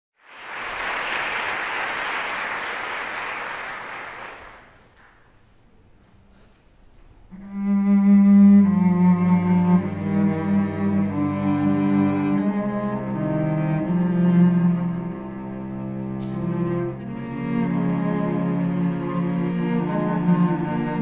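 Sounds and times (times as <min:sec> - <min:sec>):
audience applause: 0:00.2 - 0:05.2
cello quartet playing bowed chords: 0:07.2 - 0:21.0.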